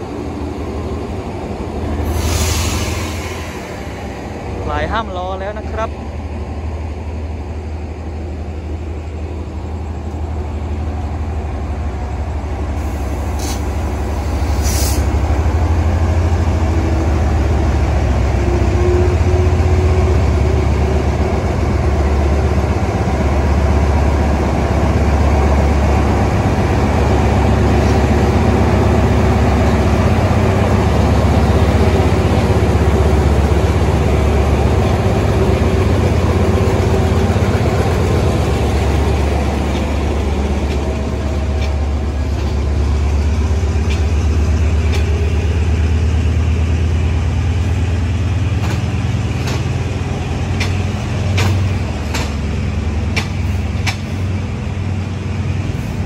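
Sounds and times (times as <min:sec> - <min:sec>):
diesel locomotive engine humming: 0:00.0 - 0:56.0
air hisses: 0:12.9 - 0:15.1.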